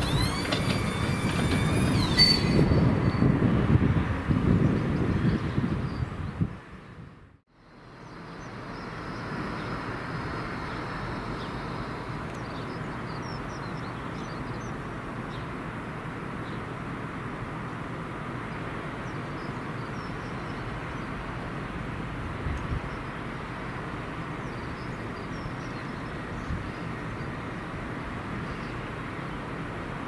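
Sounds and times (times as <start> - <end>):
locomotive engine running: 0.0 - 4.3.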